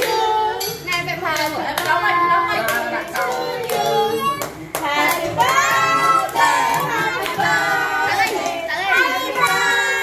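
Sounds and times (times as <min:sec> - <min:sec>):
group singing a birthday tune: 0:00.0 - 0:10.0
hands clapping along: 0:02.7 - 0:07.5, 0:08.3 - 0:09.8.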